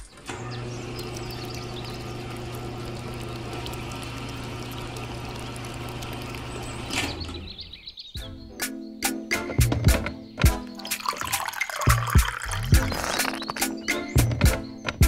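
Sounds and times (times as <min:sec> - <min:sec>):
small motor humming: 0:00.2 - 0:07.5
wet mix churning: 0:00.7 - 0:07.0, 0:10.8 - 0:13.9.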